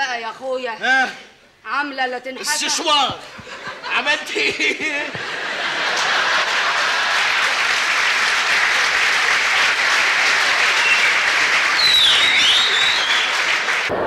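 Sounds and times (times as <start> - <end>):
audience applauding: 5.2 - 13.9.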